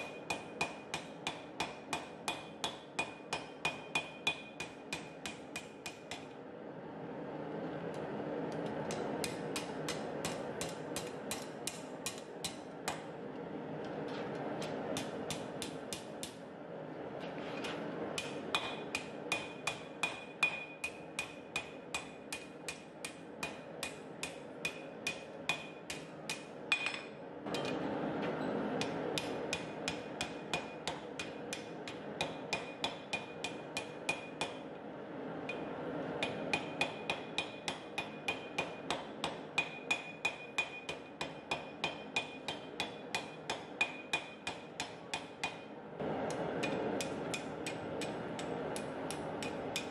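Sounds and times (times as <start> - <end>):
hammer blows on hot steel: 0.0 - 6.3, 17.7 - 27.8, 28.4 - 34.8, 35.4 - 49.9
anvil ringing: 18.2 - 27.8.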